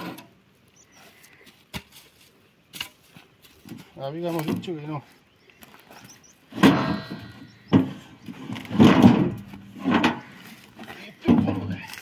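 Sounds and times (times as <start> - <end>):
logs scraping on steel trailer: 0.0 - 0.4, 6.5 - 12.0.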